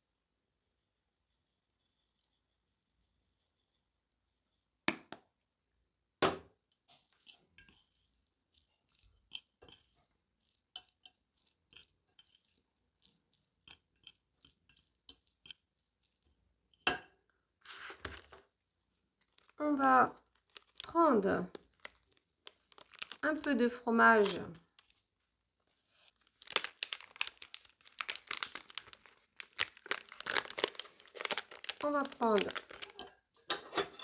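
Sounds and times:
fork scraping glass bowl: 0:07.2 - 0:15.6, 0:32.9 - 0:34.0.

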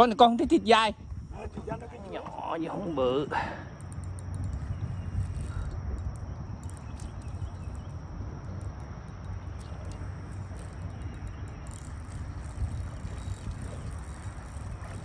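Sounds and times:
faint high-pitched ticks: 0:03.7 - 0:15.0.

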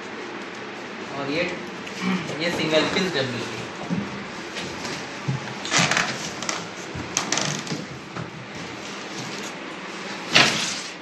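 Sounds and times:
cardboard rustling and scraping: 0:02.6 - 0:11.0.

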